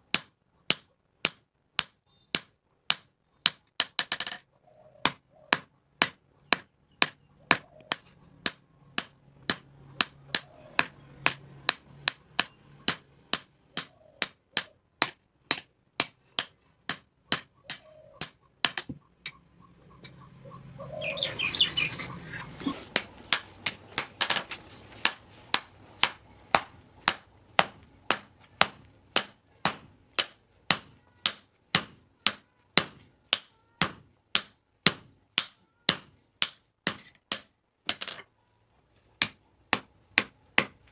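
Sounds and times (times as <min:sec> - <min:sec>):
hammer ringing on anvil: 0:25.1 - 0:37.5.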